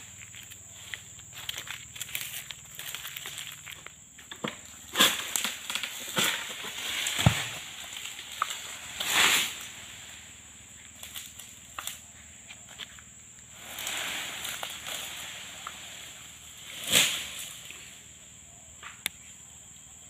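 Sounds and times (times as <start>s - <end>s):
rustling crash of falling fronds: 0.0s - 12.0s, 13.5s - 18.1s
fronds snapping and cracking: 0.2s - 9.8s, 10.9s - 12.0s, 13.6s - 15.8s, 16.7s - 17.8s.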